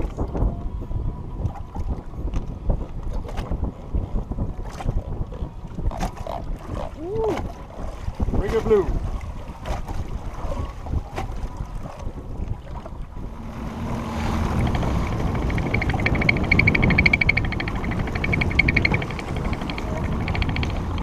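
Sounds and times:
water slapping against boat: 0:00.0 - 0:21.0
wind buffeting microphone: 0:00.0 - 0:21.0
fast ticking rattle: 0:14.6 - 0:21.0.

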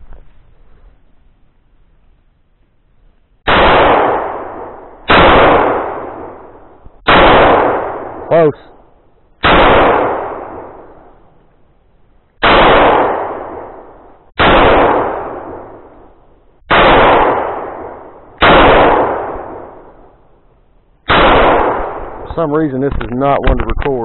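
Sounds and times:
pistol shots with echo: 0:03.5 - 0:08.5, 0:09.4 - 0:11.1, 0:12.4 - 0:16.0, 0:16.7 - 0:20.0, 0:21.1 - 0:22.2.

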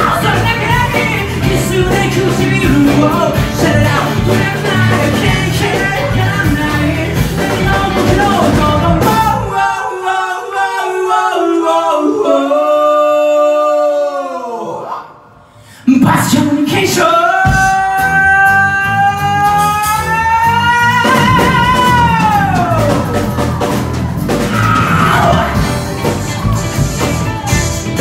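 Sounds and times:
live rock band: 0:00.0 - 0:09.7, 0:16.6 - 0:28.0
male singer: 0:00.0 - 0:14.6, 0:15.8 - 0:23.1.

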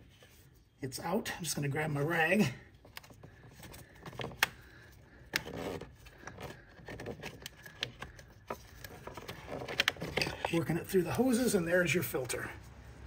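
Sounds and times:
plastic clicks knocks and scrapes: 0:02.8 - 0:04.6, 0:05.2 - 0:10.6.

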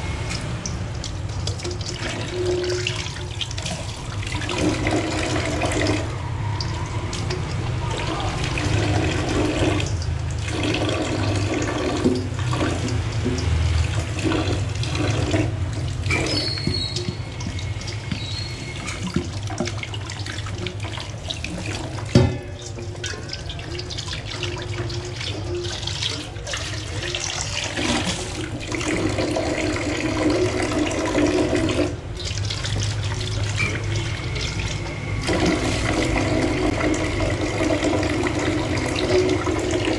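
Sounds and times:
tap water running into sink: 0:00.0 - 0:39.9.

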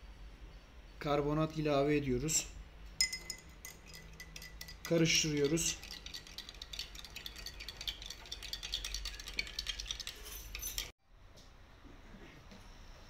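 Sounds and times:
teaspoon clinking against glass: 0:03.0 - 0:10.9.

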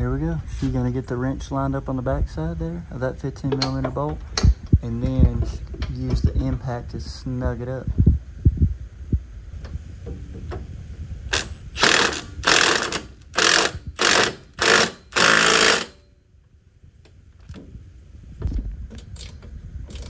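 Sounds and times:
impact wrench hammering: 0:11.3 - 0:16.0.

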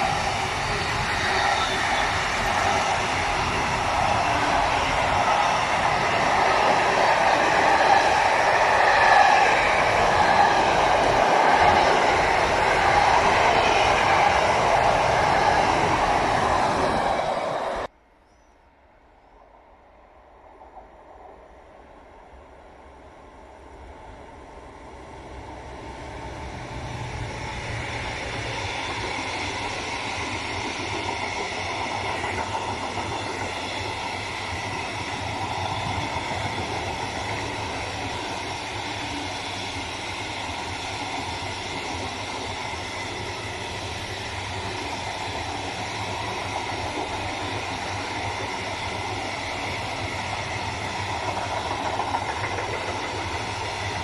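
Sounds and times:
freight train rolling past: 0:00.0 - 0:17.9, 0:19.2 - 0:54.0
wheels running on rails: 0:25.7 - 0:54.0.

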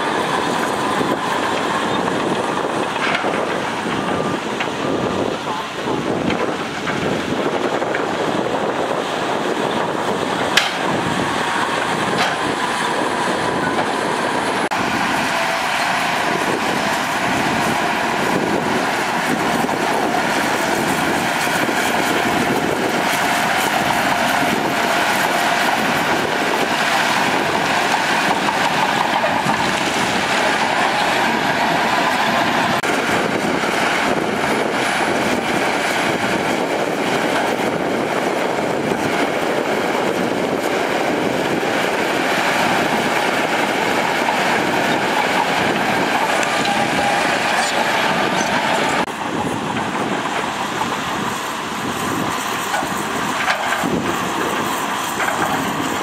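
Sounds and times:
bulldozer diesel engine running: 0:00.0 - 0:56.0
steel tracks clanking: 0:00.0 - 0:56.0
dump truck tipping rock: 0:00.2 - 0:35.5.

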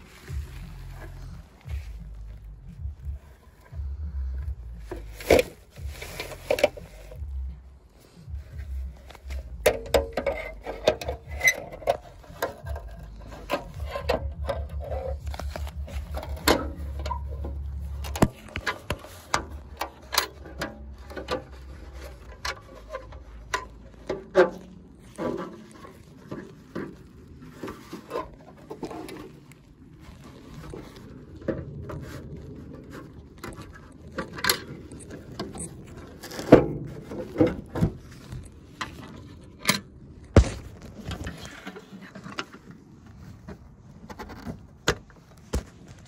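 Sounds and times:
low rumble: 0:00.0 - 0:27.6, 0:28.4 - 0:41.6
packaging handling clicks and rubbing: 0:09.0 - 0:31.4.

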